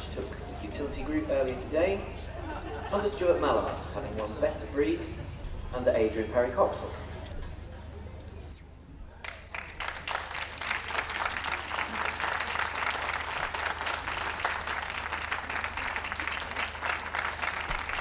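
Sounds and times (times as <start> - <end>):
audience applause: 9.2 - 18.0.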